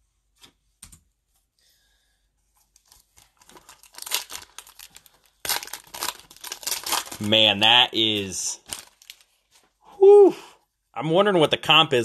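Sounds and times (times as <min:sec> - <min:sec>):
foil wrapper crinkling and tearing: 0:02.8 - 0:09.7.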